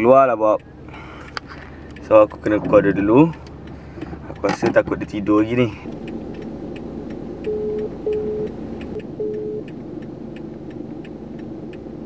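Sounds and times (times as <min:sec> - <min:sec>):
car engine idling hum: 0:00.0 - 0:12.0
light ticking: 0:00.0 - 0:12.0
phone ringback beeps: 0:07.5 - 0:08.5, 0:09.2 - 0:09.6.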